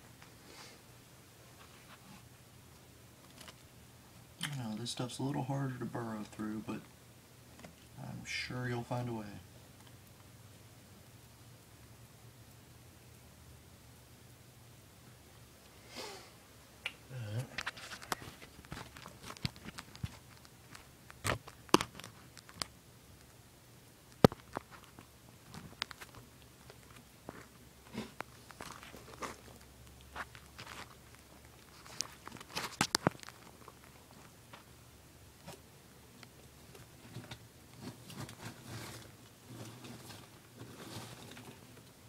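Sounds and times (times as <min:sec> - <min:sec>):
lizard crawling over bark chips: 0:17.4 - 0:22.8, 0:24.2 - 0:34.8, 0:36.2 - 0:42.0.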